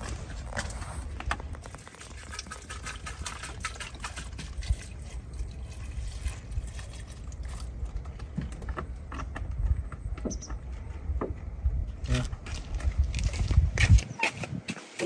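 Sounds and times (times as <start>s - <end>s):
water pouring into a metal pot: 1.6s - 7.8s.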